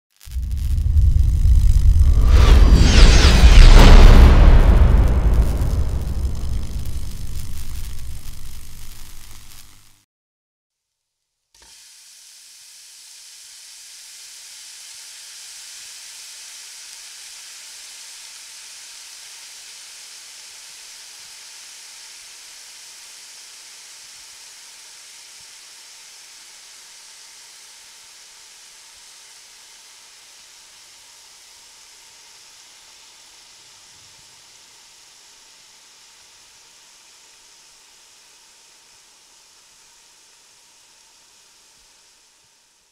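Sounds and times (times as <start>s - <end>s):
steaks sizzling on a grill: 6.4s - 10.0s, 11.8s - 42.2s.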